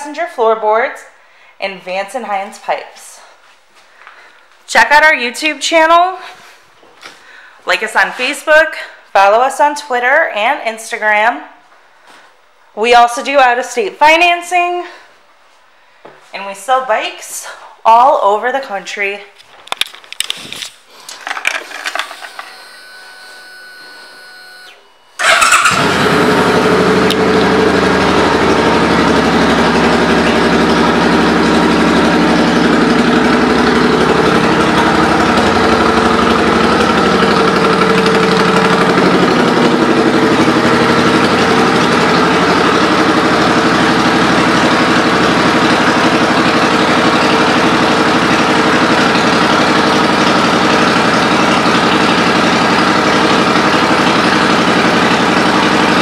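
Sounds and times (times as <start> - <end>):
motorcycle engine starting and idling: 21.6 - 56.0.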